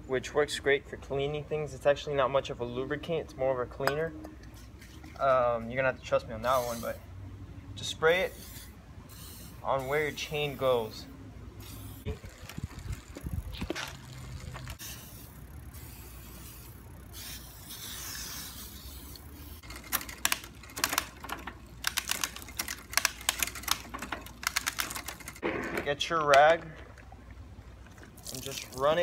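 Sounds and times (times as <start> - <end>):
aerosol spray hissing: 14.8 - 19.6
quick irregular clicks: 19.6 - 25.4.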